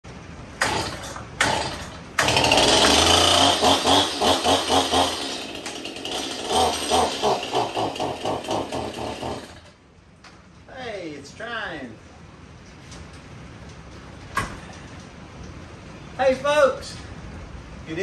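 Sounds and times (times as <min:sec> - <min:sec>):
chainsaw revving: 0:00.6 - 0:09.8.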